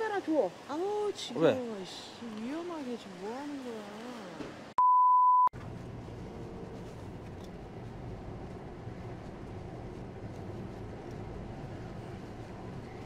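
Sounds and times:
censor bleep: 4.8s - 5.5s
vehicle road noise from inside: 5.6s - 13.0s.

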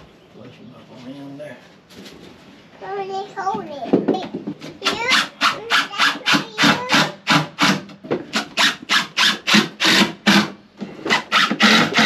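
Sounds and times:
scraping on wooden board: 4.6s - 12.0s.

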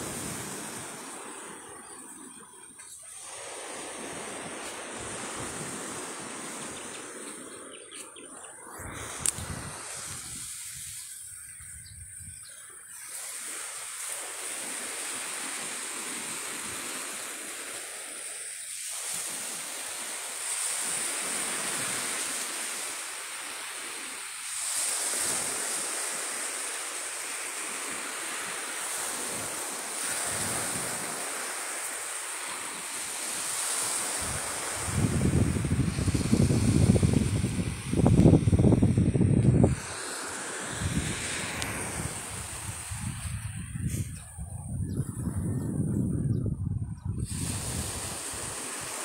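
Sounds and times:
wind rumbling on microphone: 0.0s - 12.9s, 34.1s - 49.0s
sea surf washing onto beach: 0.0s - 46.1s, 46.9s - 49.0s.

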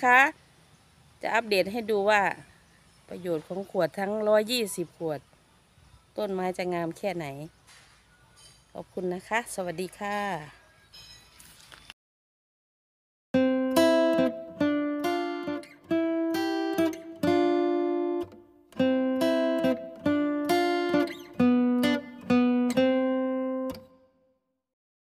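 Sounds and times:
plucked acoustic guitar melody: 13.4s - 24.0s.

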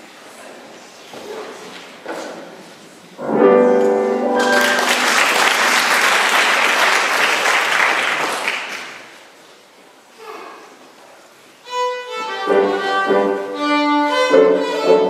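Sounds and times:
audience applause: 4.3s - 9.2s.

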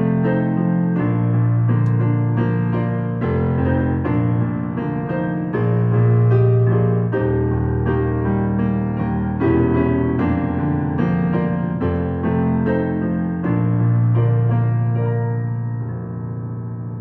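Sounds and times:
slow piano chords: 0.0s - 17.0s.

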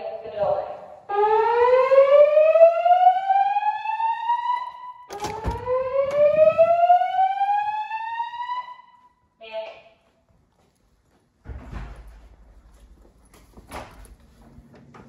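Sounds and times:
rising whoop alarm tone: 1.1s - 8.9s.

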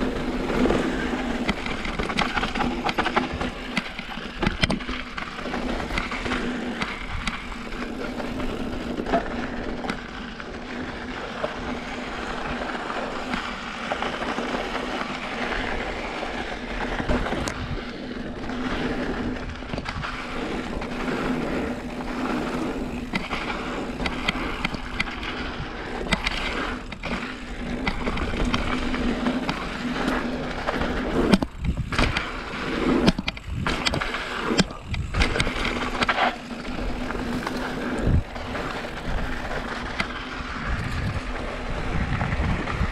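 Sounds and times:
bike rattling: 0.0s - 42.9s
bike tyres crunching over rock: 0.0s - 42.9s.

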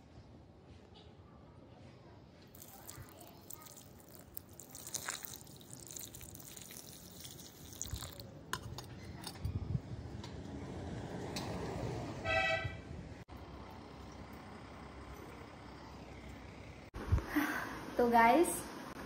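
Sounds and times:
water splashing onto soil: 2.5s - 8.3s.

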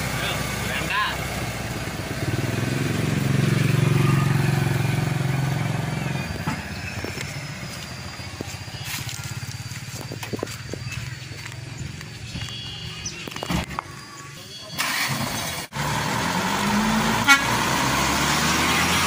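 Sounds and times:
diesel truck engine revving: 0.0s - 19.0s.

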